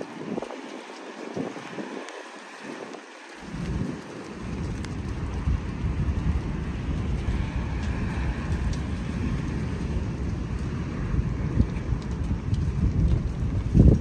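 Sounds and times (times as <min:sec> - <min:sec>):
raindrop ticks: 0:00.0 - 0:14.0
steady rain: 0:00.0 - 0:14.0
thunder rumbling: 0:00.0 - 0:14.0.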